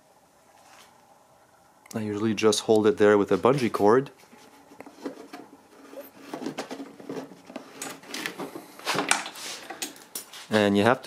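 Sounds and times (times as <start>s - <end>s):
cord and plastic rustling and scraping: 3.4s - 10.5s.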